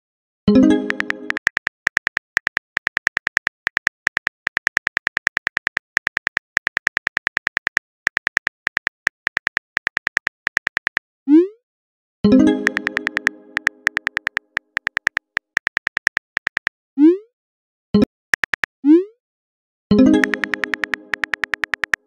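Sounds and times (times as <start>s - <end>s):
phone keyboard clicks: 0.7s - 11.0s, 12.6s - 16.8s, 18.3s - 18.7s, 20.2s - 22.0s.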